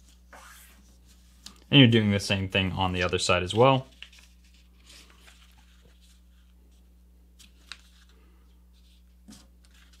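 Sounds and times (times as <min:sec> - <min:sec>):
low steady hum: 0:00.0 - 0:10.0
paper being folded: 0:02.9 - 0:10.0.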